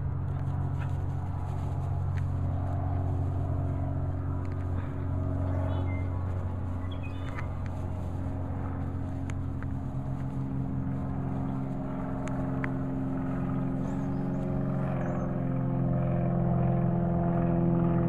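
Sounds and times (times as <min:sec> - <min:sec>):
motor engine humming: 0:00.0 - 0:18.0.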